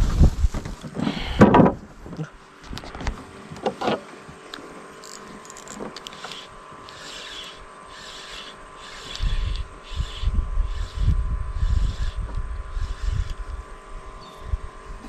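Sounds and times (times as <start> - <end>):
faint steady hum: 0.0 - 15.0
fishing reel clicks and knocks: 5.0 - 11.0.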